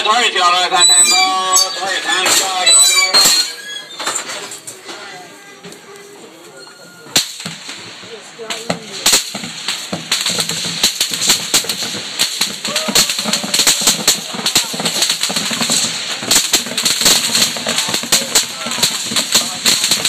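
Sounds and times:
rifle rounds cracking overhead: 8.5 - 20.0.

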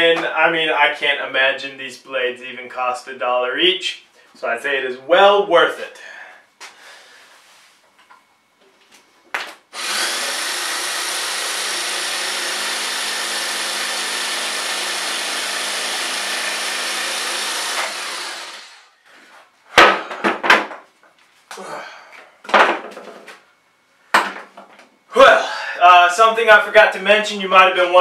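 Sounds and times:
jigsaw cutting board: 9.7 - 18.9.

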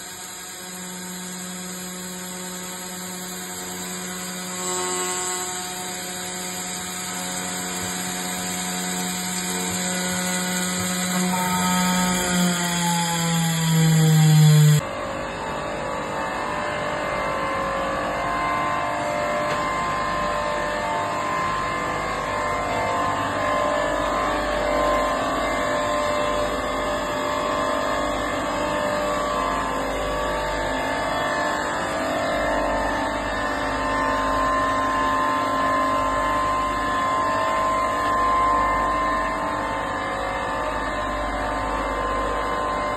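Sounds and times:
machinery whirring: 0.0 - 14.8
machine motors humming and whining: 0.0 - 42.9.

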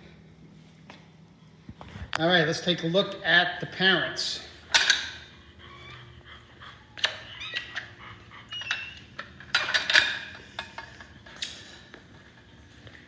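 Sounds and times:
metal gate clinking and rattling: 8.6 - 10.9.

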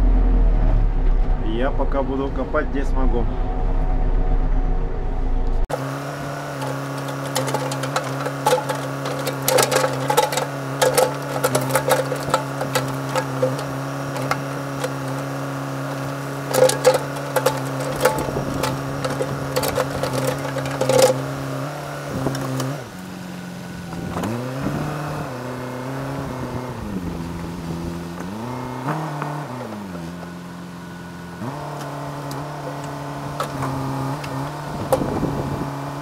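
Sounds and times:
diesel engine running: 0.0 - 36.0
backhoe bucket knocks and clanks: 6.5 - 22.8, 32.3 - 35.2.

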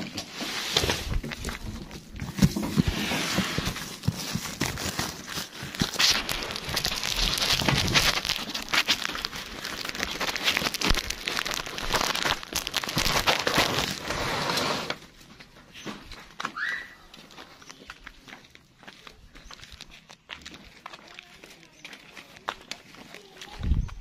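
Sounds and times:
rustling and crackling with clicks: 0.0 - 24.0.

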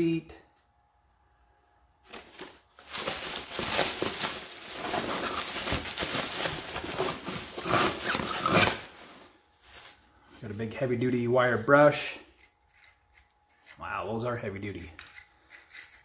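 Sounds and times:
bubble wrap and cardboard crinkling: 2.0 - 10.5.

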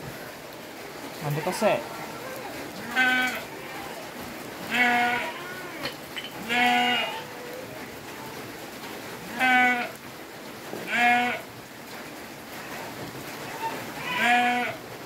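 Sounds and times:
goat bleating: 2.1 - 7.4, 9.2 - 10.0, 10.9 - 11.5, 13.5 - 14.8.

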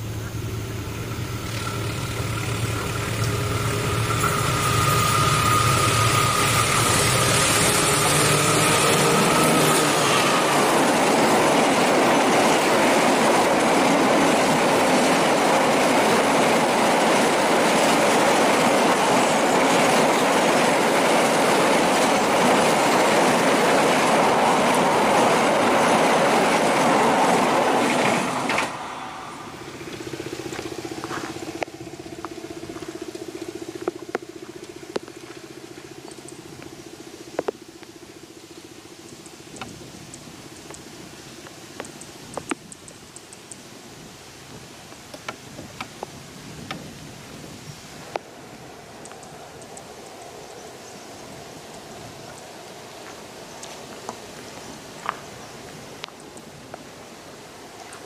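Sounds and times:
train passing at speed: 0.0 - 42.0, 45.8 - 58.0.

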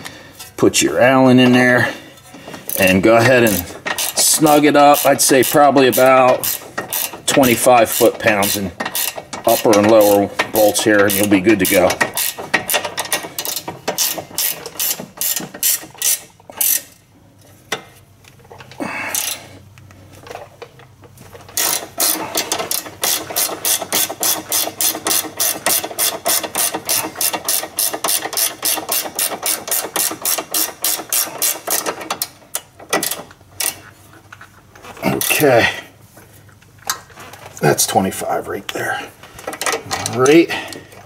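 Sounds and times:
hand ratchet clicking: 2.7 - 17.0, 18.6 - 19.5, 21.5 - 33.9.

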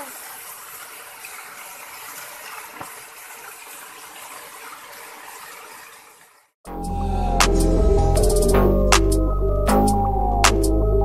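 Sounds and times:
rush of falling water: 0.0 - 6.3.

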